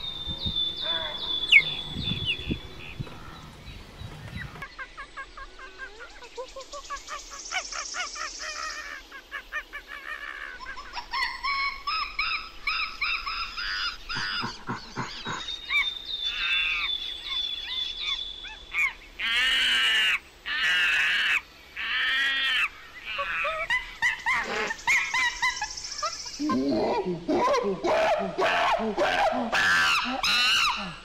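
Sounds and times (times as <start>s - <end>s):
animal chirping notes: 0.0s - 3.1s
loud harsh animal calls: 26.7s - 31.0s.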